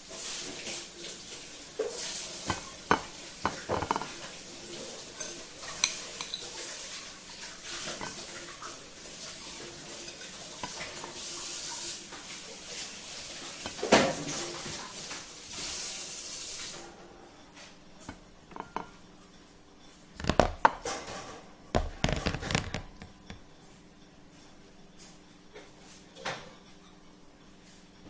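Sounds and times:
steady hiss: 0:00.0 - 0:16.9
spoon clinking on plate: 0:05.2 - 0:06.5.

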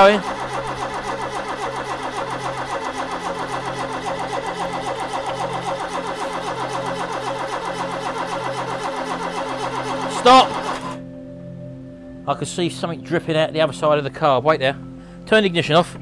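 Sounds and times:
engine cranking on starter motor: 0:00.0 - 0:11.1.

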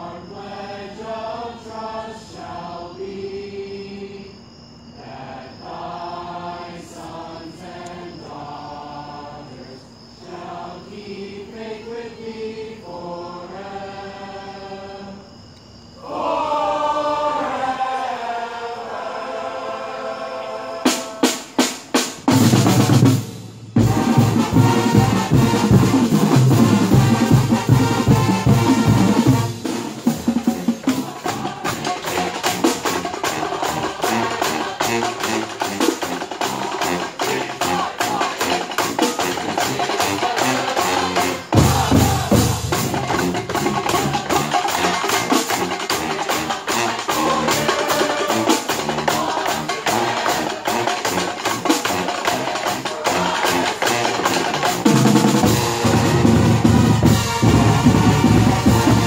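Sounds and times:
large group singing: 0:00.0 - 0:04.4, 0:05.0 - 0:15.4, 0:16.0 - 0:21.9, 0:23.8 - 0:59.0
fast drum cadence with bass drum: 0:20.9 - 0:59.0.

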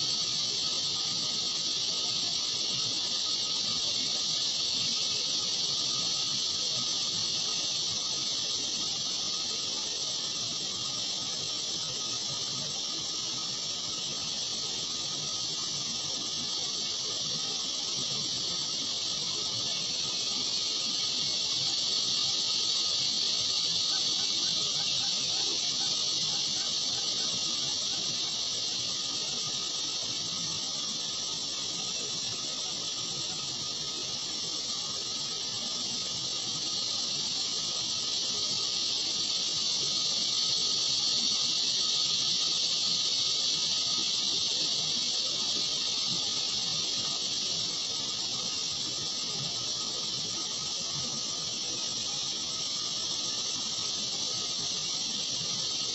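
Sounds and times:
steady high-pitched hiss: 0:00.0 - 0:55.9.

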